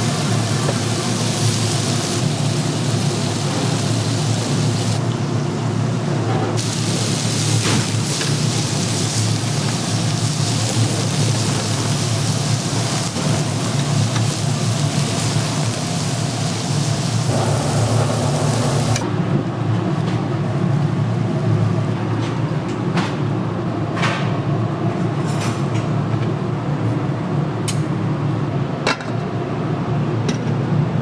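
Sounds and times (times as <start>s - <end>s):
meat sizzling on a grill: 0.0s - 5.0s, 6.6s - 19.0s
steady low hum: 0.0s - 31.0s.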